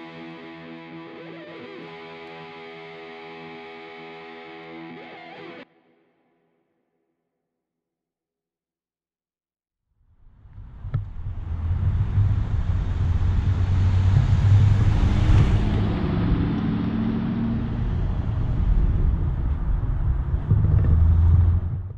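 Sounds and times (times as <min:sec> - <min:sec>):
car engine driving by: 0:10.2 - 0:21.9.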